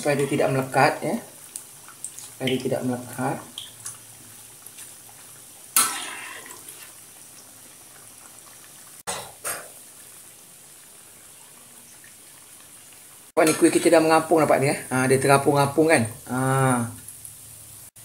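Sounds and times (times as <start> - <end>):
frying in hot oil sizzling: 0.0 - 18.0
spatula stirring through oil: 3.6 - 9.0.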